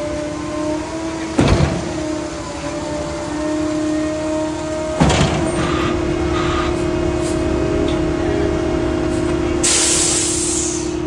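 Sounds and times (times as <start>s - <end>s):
constant whining tone: 0.0s - 9.7s
truck engine hum: 0.0s - 11.0s
short hisses: 9.6s - 11.0s.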